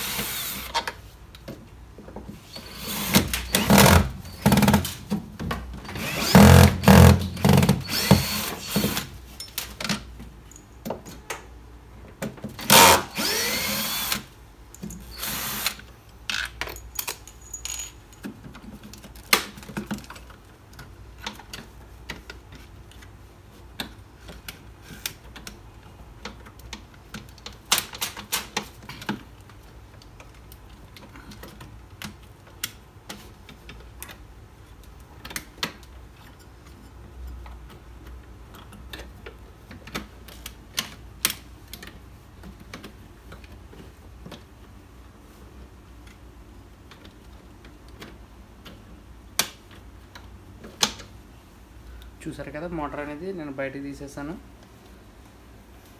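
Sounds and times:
cordless drill whining: 0.0s - 0.7s, 2.6s - 4.7s, 5.9s - 9.0s, 12.7s - 14.3s, 15.1s - 15.8s.

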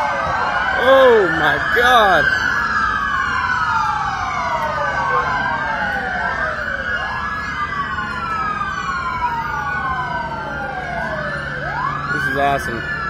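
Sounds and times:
police sirens wailing: 0.0s - 13.0s.

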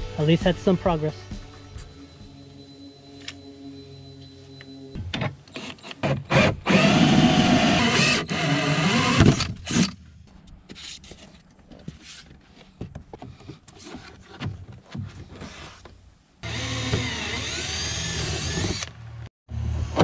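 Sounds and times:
power saw cutting plastic board: 5.6s - 10.0s, 16.4s - 19.0s.

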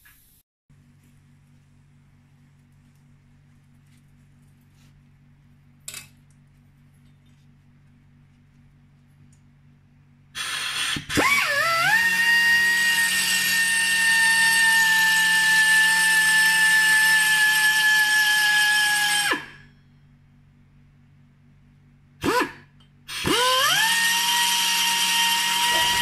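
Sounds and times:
sander motor high whine: 10.4s - 19.5s, 23.1s - 26.0s.

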